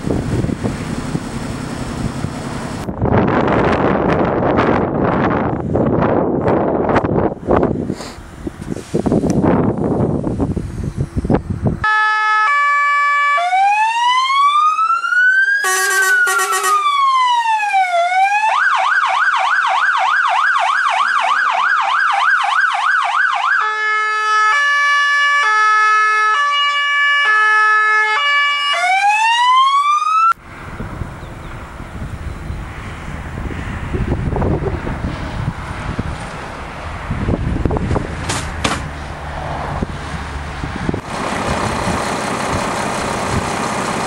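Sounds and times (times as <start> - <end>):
wind noise: 0.0 - 11.9, 30.4 - 43.6
fire engine siren: 11.8 - 37.4
buzzy horn burst: 15.6 - 17.0.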